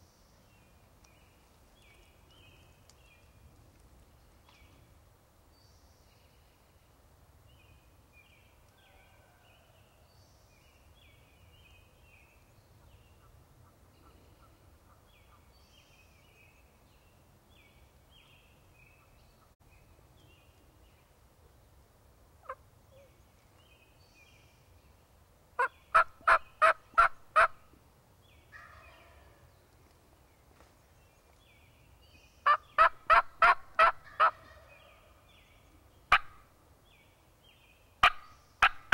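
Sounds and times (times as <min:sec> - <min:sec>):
faint songbird chirping: 0:00.0 - 0:38.9
wild turkey calling: 0:25.6 - 0:27.6, 0:32.4 - 0:35.1, 0:36.1 - 0:36.4.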